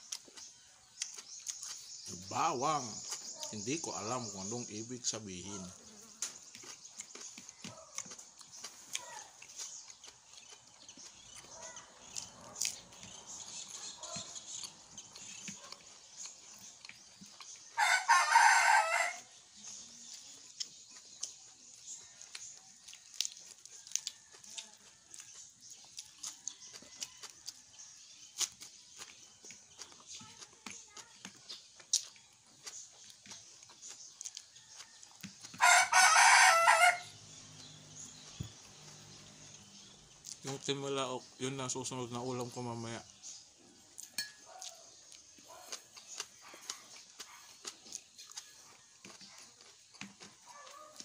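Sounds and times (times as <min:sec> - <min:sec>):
faint eating noises: 0:00.0 - 0:51.0
rooster crowing: 0:17.8 - 0:19.3, 0:35.6 - 0:37.2.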